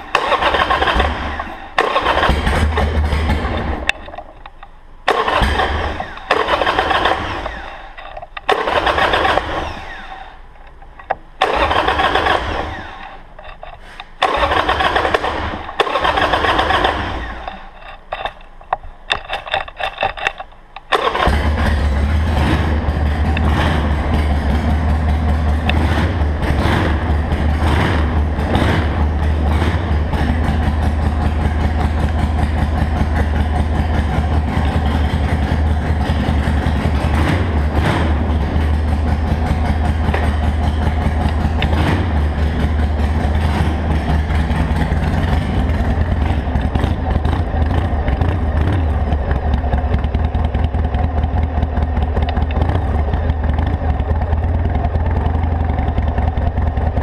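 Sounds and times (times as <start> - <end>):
motorcycle engine running: 0.0 - 4.2, 21.0 - 57.0.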